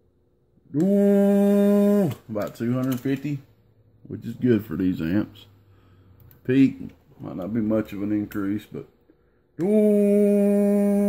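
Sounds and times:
man humming steady tone: 9.6s - 11.0s.

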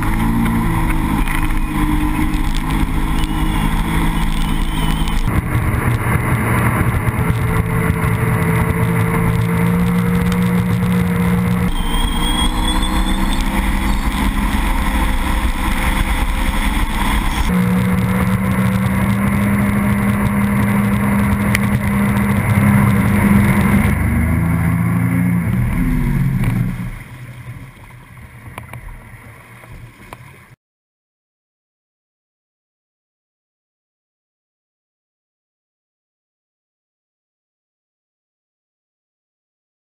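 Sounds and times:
water rushing: 0.0s - 30.6s
watercraft engine running: 0.0s - 30.6s.

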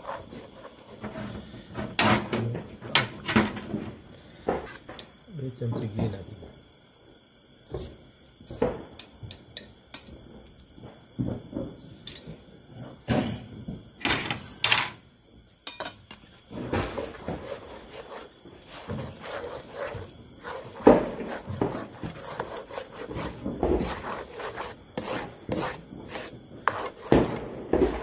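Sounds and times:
spatula scraping thick paste: 0.0s - 1.7s, 16.5s - 28.0s
crickets chirping: 0.0s - 28.0s.

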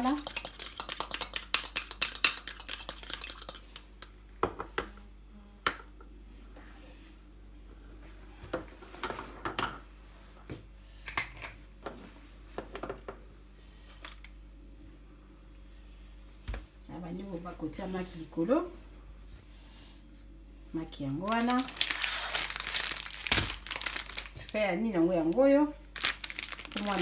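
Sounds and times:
fork beating egg in plastic cup: 0.0s - 4.2s.

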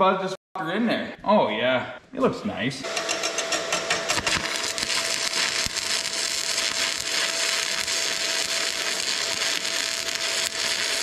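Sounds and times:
arc welder crackling: 2.8s - 11.0s.

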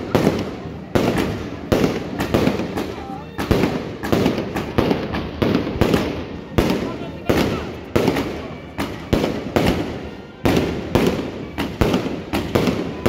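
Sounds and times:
fireworks bangs: 0.0s - 13.0s.

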